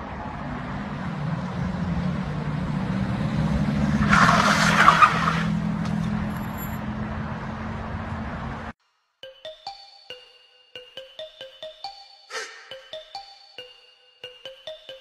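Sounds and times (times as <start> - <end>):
car engine running: 0.0 - 8.7
tyre skid on tarmac: 2.4 - 6.8.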